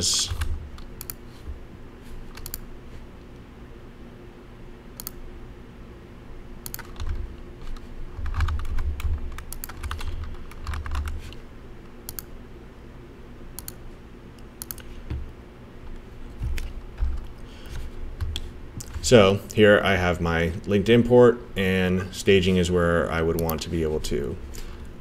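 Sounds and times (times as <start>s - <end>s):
keyboard and mouse clicking: 0.2s - 1.2s, 2.3s - 2.7s, 5.0s - 5.2s, 6.6s - 11.4s, 12.1s - 12.3s, 13.6s - 13.8s, 14.6s - 14.9s.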